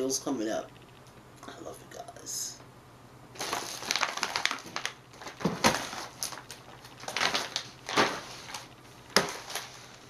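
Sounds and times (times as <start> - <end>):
plastic packaging crinkling: 3.4 - 10.0.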